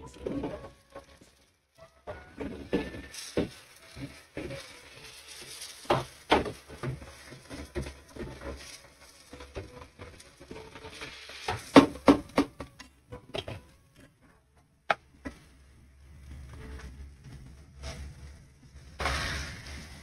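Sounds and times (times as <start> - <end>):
wooden spatula scraping a pot: 2.0 - 12.6.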